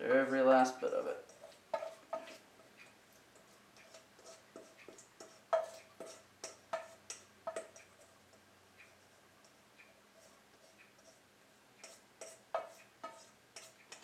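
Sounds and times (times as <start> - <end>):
spatula scraping metal bowl: 0.8 - 8.4, 9.0 - 11.2, 11.8 - 14.0.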